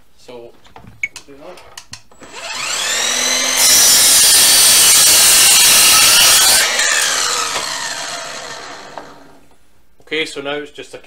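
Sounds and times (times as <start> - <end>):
mitre saw cutting wood: 2.2 - 9.4
saw motor winding down: 2.2 - 9.4.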